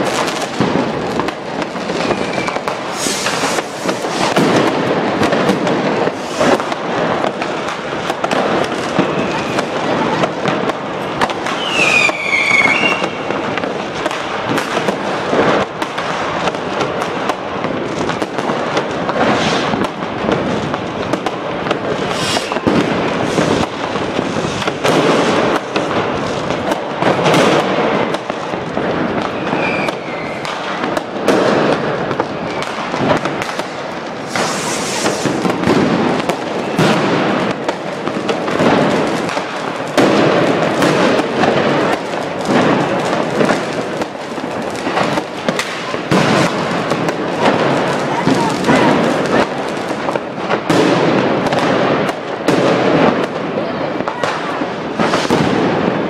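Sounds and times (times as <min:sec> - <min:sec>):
fireworks banging and cracking: 0:00.0 - 0:56.0
whistling rocket falling whistle: 0:01.9 - 0:03.6, 0:11.6 - 0:13.3, 0:22.1 - 0:22.7, 0:29.3 - 0:30.4, 0:34.3 - 0:35.3
short high hiss: 0:02.9 - 0:03.6, 0:22.1 - 0:22.6, 0:34.3 - 0:35.2.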